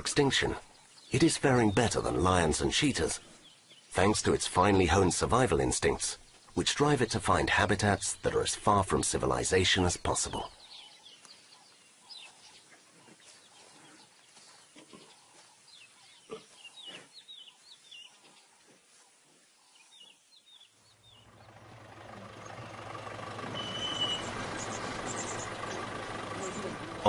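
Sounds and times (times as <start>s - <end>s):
birds chirping: 0.0s - 27.0s
vehicle engine hum: 20.9s - 27.0s.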